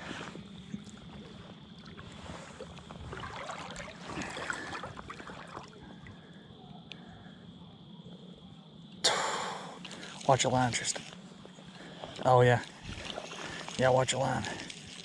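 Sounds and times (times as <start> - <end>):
faint clicks: 6.8 - 7.1.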